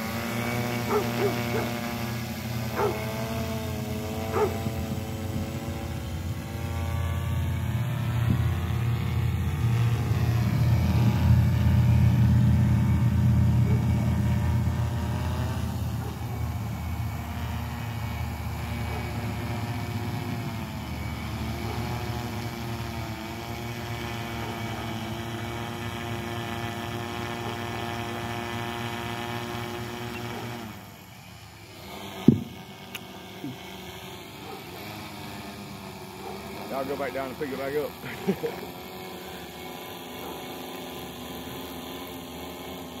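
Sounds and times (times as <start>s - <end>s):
drone propellers humming: 0.0s - 43.0s
loud knock: 32.3s - 32.5s.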